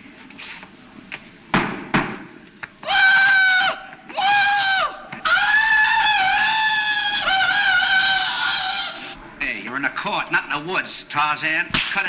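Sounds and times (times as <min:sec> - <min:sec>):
man yodelling jungle yell: 0:02.8 - 0:09.0.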